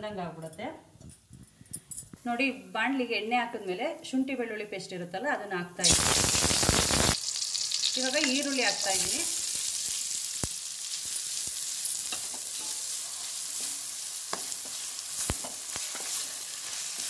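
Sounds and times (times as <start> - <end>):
onions sizzling in hot oil: 5.8 - 17.0.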